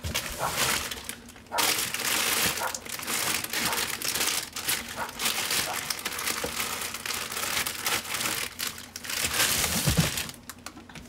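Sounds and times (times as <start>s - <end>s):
plastic bags crinkling: 0.0s - 10.8s.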